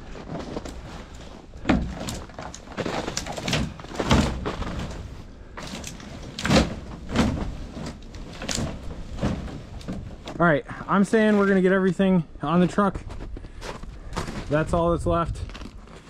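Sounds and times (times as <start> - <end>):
pine branches crackling: 0.0 - 12.0.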